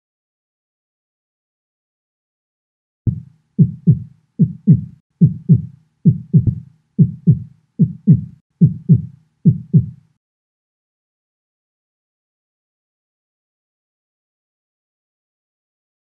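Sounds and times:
heartbeat through stethoscope: 3.1s - 10.0s.

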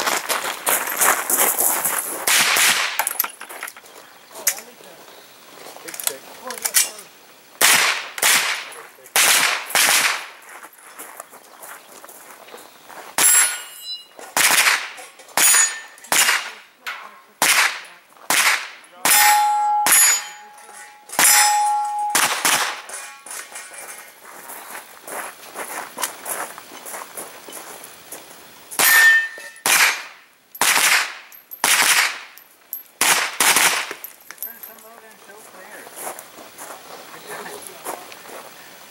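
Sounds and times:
gunshots: 2.3s - 3.0s, 7.6s - 10.4s, 14.4s - 16.6s, 17.4s - 20.4s, 21.2s - 23.0s, 28.8s - 32.3s, 33.0s - 34.0s
steel targets ringing: 13.2s - 14.1s, 15.4s - 17.2s, 19.0s - 24.2s, 28.8s - 30.1s.

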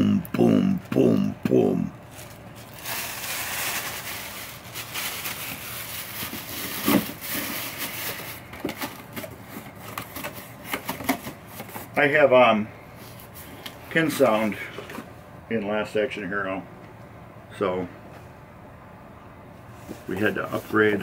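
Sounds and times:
plastic bag crinkling: 2.0s - 10.7s.

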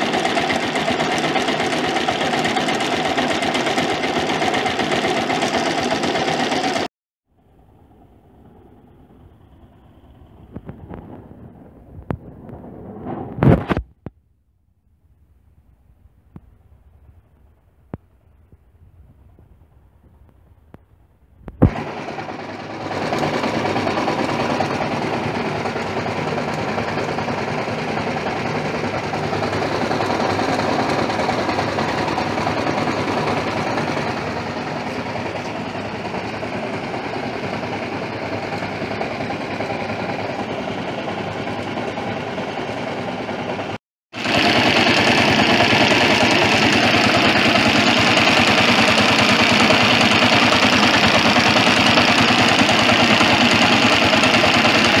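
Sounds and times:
engine idling with clatter: 0.0s - 11.4s, 21.6s - 55.0s.

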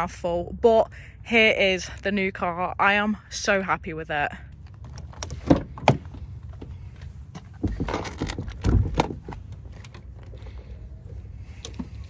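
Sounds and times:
bonnet latch clicks and knocks: 7.6s - 10.2s.

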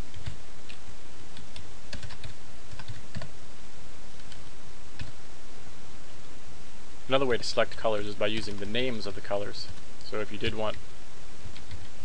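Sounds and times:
steady background hiss: 0.0s - 12.0s
computer keyboard typing: 0.1s - 0.8s, 1.4s - 3.3s, 4.2s - 5.1s.

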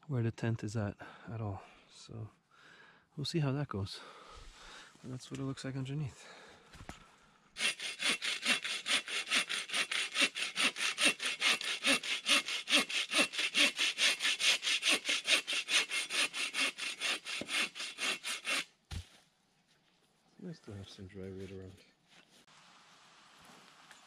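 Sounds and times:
saw cutting through log: 7.6s - 18.7s.

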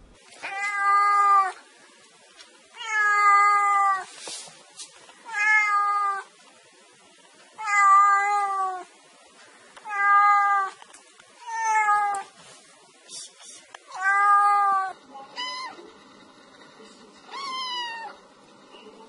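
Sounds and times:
cat meowing: 0.4s - 1.6s, 2.8s - 4.1s, 5.2s - 6.3s, 7.6s - 8.9s, 9.8s - 10.8s, 11.4s - 12.3s, 13.9s - 15.8s, 17.3s - 18.2s.

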